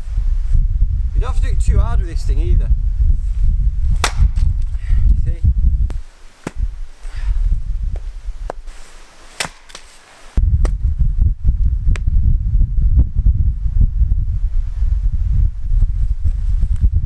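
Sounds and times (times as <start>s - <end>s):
wind buffeting microphone: 0.0s - 8.7s, 10.4s - 17.0s
axe splitting log: 4.0s - 4.5s, 9.4s - 9.9s.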